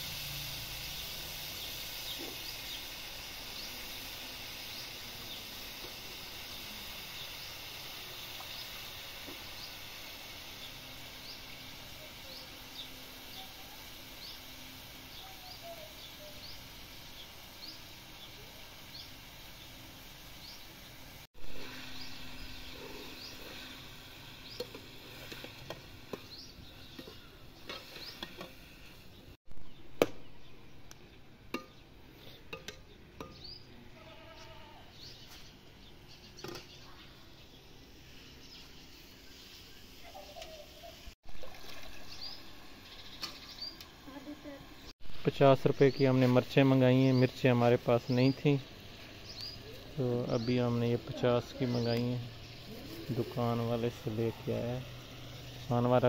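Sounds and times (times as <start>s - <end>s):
faint steady hiss: 0.0s - 56.0s.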